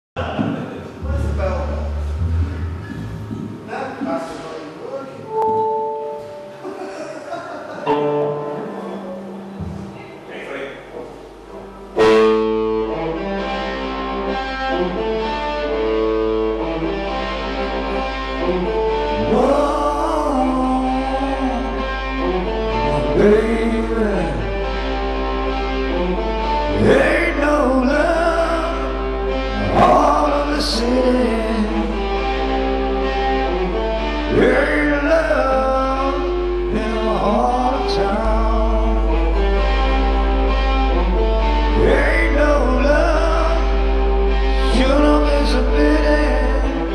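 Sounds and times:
electric guitars sustained chords: 0:00.9 - 0:04.0, 0:05.2 - 0:46.9
live rock band playing: 0:01.0 - 0:03.7, 0:11.3 - 0:46.9.

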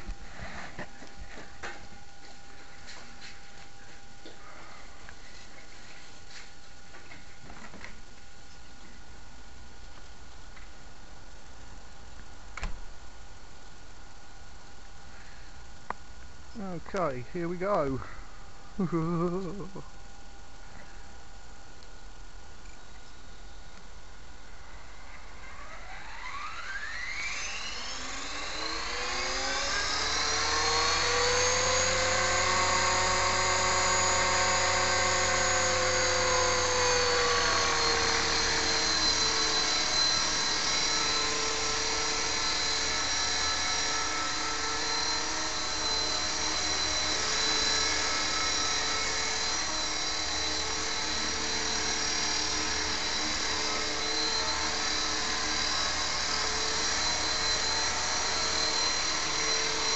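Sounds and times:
model helicopter whine: 0:18.9 - 0:19.8, 0:24.6 - 0:59.9.

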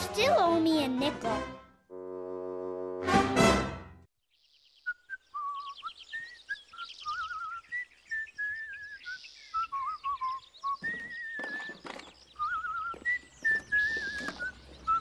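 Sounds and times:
cartoon birdsong chirps: 0:04.4 - 0:15.0
gentle whistled tune: 0:04.6 - 0:15.0.

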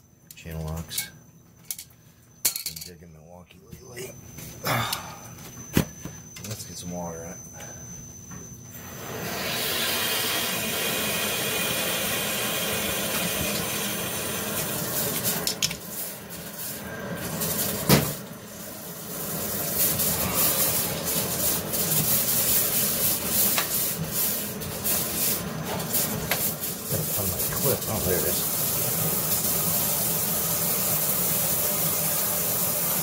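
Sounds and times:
water rushing into tank: 0:08.9 - 0:15.4.

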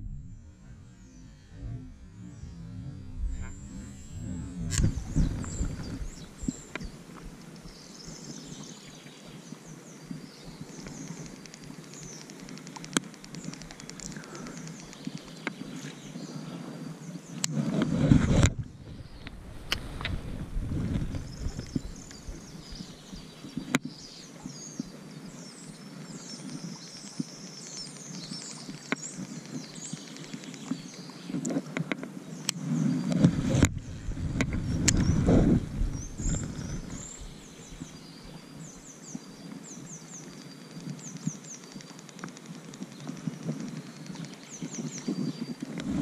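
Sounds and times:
sharp clicks: 0:00.0 - 0:06.9
low rumble: 0:00.0 - 0:07.4, 0:33.3 - 0:38.4
birds chirping: 0:00.0 - 0:12.3, 0:20.8 - 0:31.4, 0:32.3 - 0:42.3.

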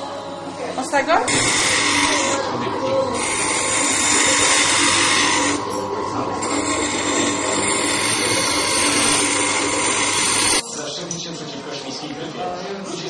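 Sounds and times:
glass grinder whining: 0:00.1 - 0:10.8.

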